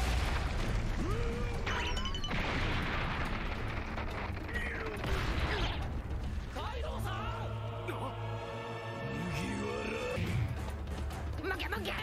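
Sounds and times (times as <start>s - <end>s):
heavy rumbling explosions: 0.0s - 1.7s, 2.3s - 6.6s.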